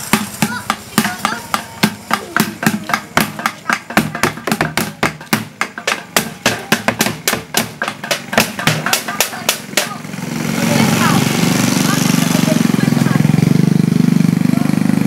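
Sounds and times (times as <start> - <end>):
sticks beating plastic containers: 0.1 - 10.0.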